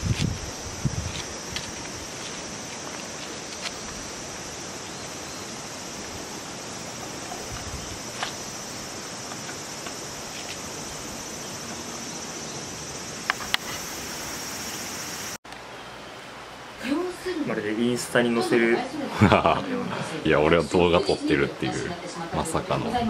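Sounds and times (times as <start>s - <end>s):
insect chorus trilling: 0.0s - 15.4s
background hiss: 0.0s - 23.0s.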